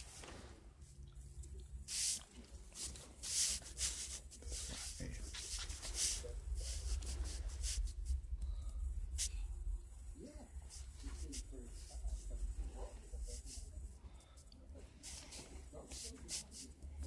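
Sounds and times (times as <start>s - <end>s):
clothes rustling against microphone: 0.0s - 1.0s, 1.9s - 8.1s
low steady hum: 0.0s - 17.0s.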